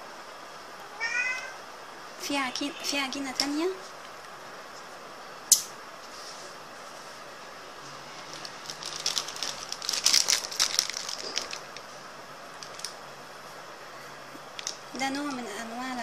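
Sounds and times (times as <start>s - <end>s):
plastic wrapping crinkling: 8.1s - 13.0s, 14.5s - 14.8s.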